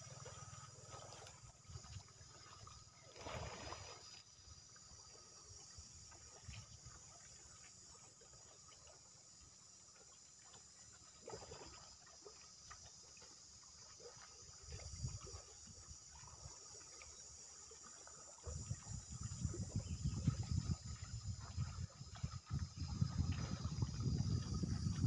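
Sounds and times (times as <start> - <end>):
insects chirring: 0.0 - 25.0
wind buffeting microphone: 18.5 - 25.0.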